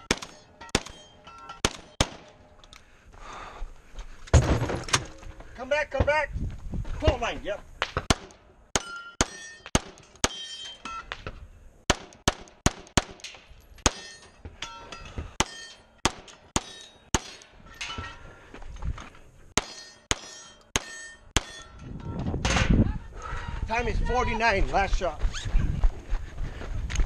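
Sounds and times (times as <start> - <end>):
steel targets ringing: 0.0 - 2.1, 8.8 - 11.1, 13.8 - 15.9, 16.6 - 18.2, 19.6 - 21.9.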